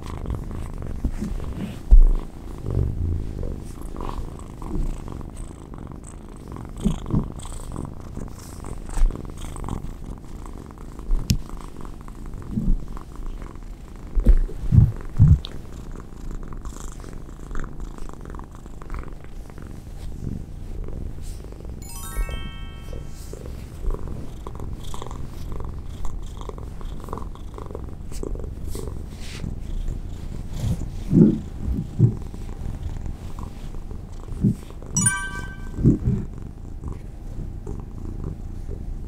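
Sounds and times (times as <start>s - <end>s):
kitten purring: 0.0s - 21.5s.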